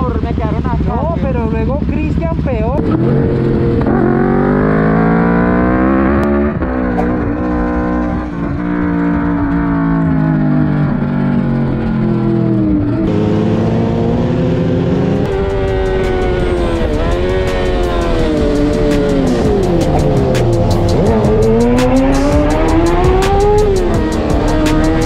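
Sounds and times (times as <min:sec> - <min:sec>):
motorcycle engines revving: 0:00.0 - 0:25.0.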